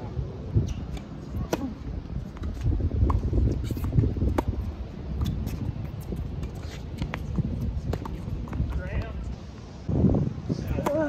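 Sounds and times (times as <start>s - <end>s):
tennis ball bouncing: 0.8s - 9.2s, 10.8s - 11.0s.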